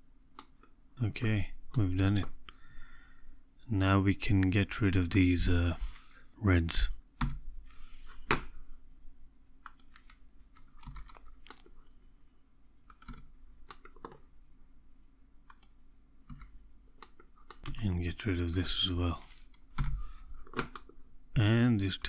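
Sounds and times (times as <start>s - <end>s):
computer mouse clicks: 9.6s - 11.8s, 12.9s - 14.2s, 15.5s - 17.8s.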